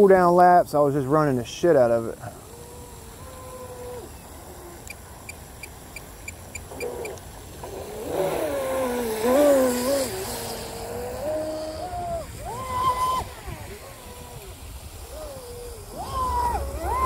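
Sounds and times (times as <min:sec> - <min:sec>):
hull hissing through spray: 0:01.7 - 0:17.0
electric motor whining: 0:07.6 - 0:17.0.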